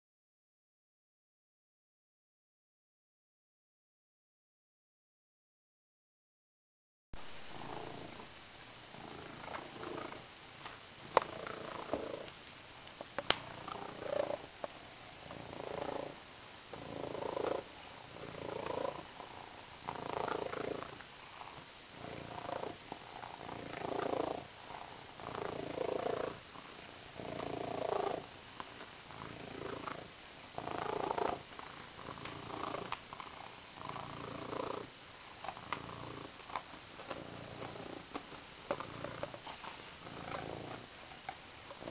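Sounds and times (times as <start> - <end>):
cat purring: 7.2 - 41.9.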